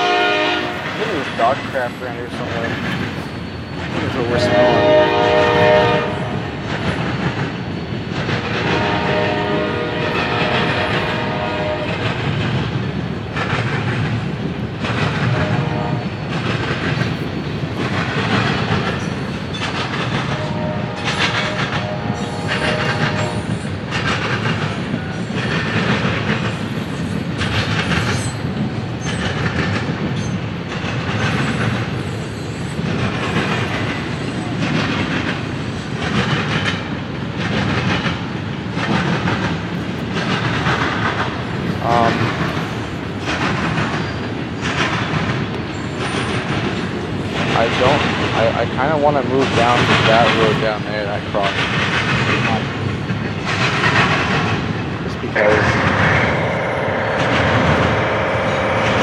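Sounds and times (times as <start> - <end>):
train rolling rumble: 0.0 - 59.0
train wheels clacking on rail joints: 0.0 - 59.0.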